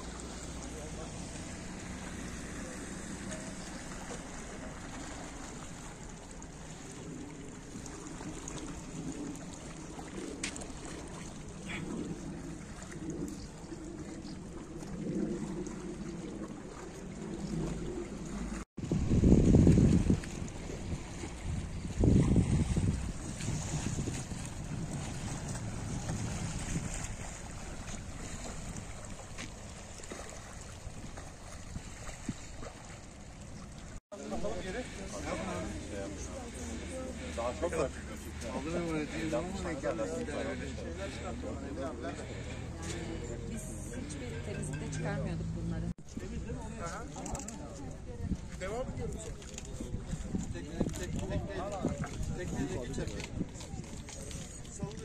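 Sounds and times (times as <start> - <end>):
seawater lapping against a quay: 0.0 - 55.0
wind noise on microphone: 7.8 - 35.8, 46.0 - 55.0.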